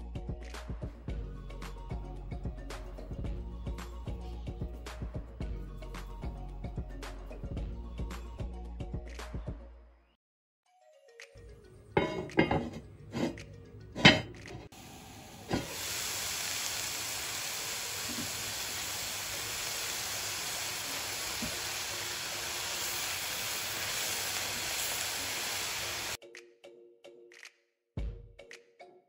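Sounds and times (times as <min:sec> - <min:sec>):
pot lid knocks: 0:12.0 - 0:12.8, 0:14.0 - 0:14.4
vegetables sizzling in hot oil: 0:14.7 - 0:26.2.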